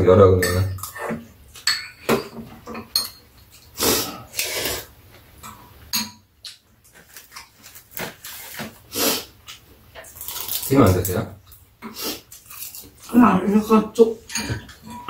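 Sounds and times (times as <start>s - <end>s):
spoons and chopsticks clinking on bowls: 0.4s - 3.7s, 14.1s - 15.0s.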